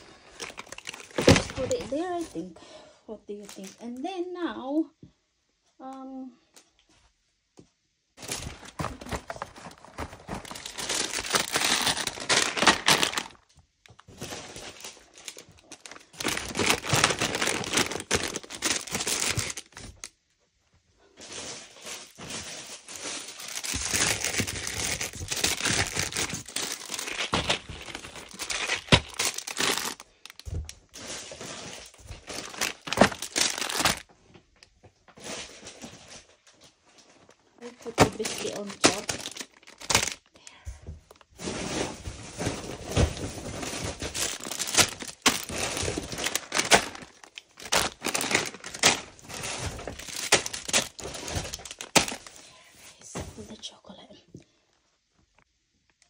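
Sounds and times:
plastic wrappers crinkling: 0:00.0 - 0:02.5, 0:03.3 - 0:04.3, 0:08.2 - 0:20.2, 0:21.0 - 0:40.4, 0:41.1 - 0:53.1.

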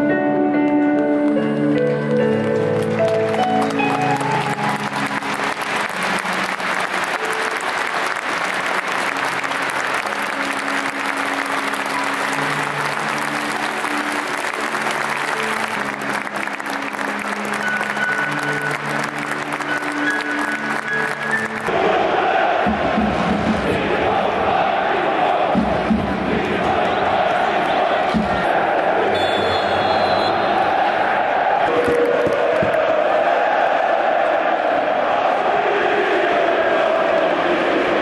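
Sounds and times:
slow music: 0:00.0 - 0:21.8
stadium crowd applauding: 0:01.2 - 0:38.0.

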